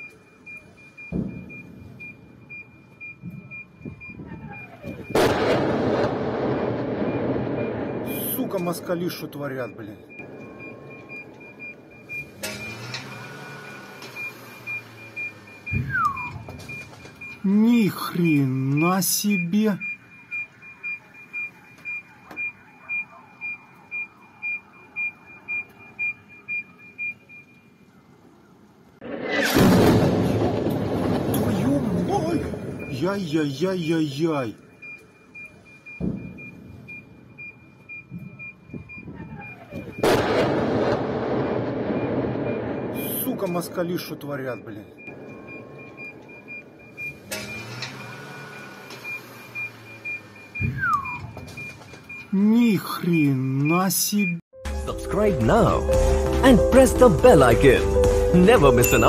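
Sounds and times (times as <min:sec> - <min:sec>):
car alarm beeping: 0:00.0 - 0:28.5, 0:29.5 - 0:54.5, 0:55.1 - 0:59.0
sudden thud: 0:36.0 - 0:36.5.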